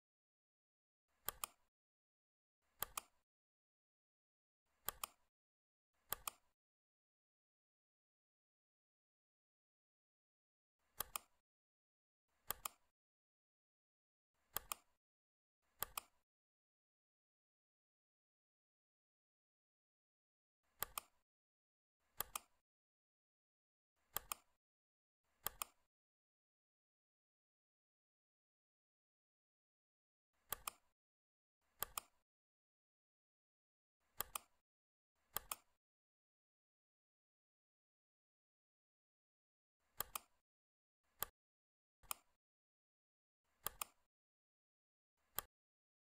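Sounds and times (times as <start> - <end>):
computer mouse clicking: 1.1 - 1.7, 2.7 - 3.2, 4.7 - 5.3, 6.0 - 6.6, 10.8 - 11.4, 12.4 - 12.9, 14.4 - 15.0, 15.7 - 16.2, 20.7 - 21.2, 22.1 - 22.6, 24.0 - 24.6, 25.4 - 25.9, 30.4 - 30.9, 31.7 - 32.2, 34.0 - 34.6, 35.2 - 35.8, 39.8 - 40.4, 42.0 - 42.4, 43.5 - 44.1, 45.2 - 45.5
mouse double clicks: 43.6 - 44.0.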